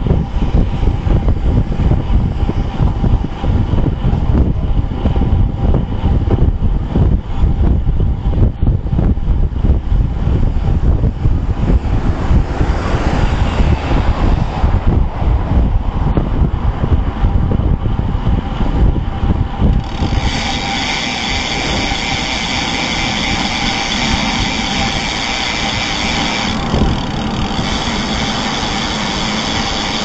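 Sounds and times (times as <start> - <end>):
passing traffic: 0.0 - 30.0
wind rumbling on microphone: 0.0 - 30.0.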